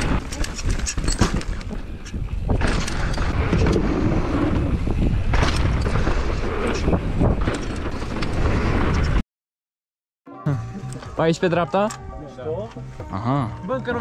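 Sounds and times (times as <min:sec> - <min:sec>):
tyres rumbling and bike rattling: 0:00.0 - 0:09.2
wind buffeting microphone: 0:00.0 - 0:09.2.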